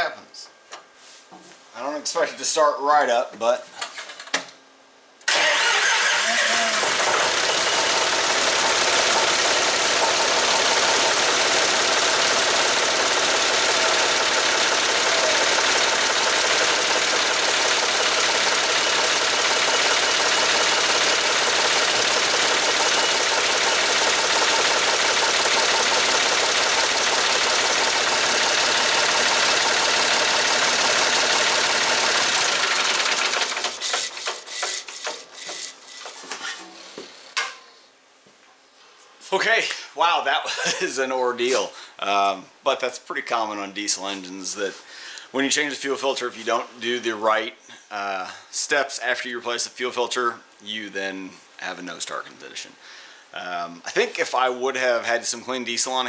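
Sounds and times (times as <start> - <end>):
diesel engine running: 5.3 - 34.4
diesel engine starter cranking: 5.3 - 35.7.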